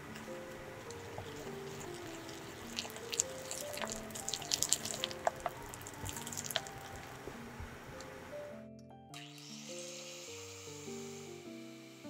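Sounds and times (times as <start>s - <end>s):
whisk clicking in batter: 0.8s - 7.1s.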